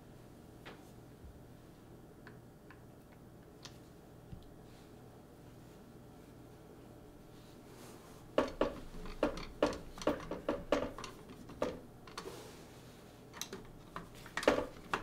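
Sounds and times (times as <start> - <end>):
plastic parts clacking: 8.4 - 12.3, 13.4 - 15.0.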